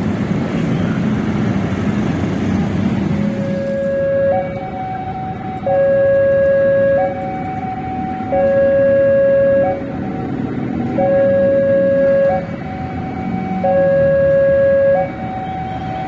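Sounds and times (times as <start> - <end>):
electronic two-tone warning alarm: 3.2 - 16.0.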